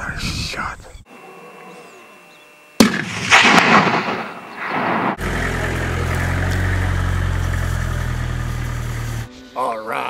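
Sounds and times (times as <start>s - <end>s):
rifle shot with echo: 2.8s - 5.2s.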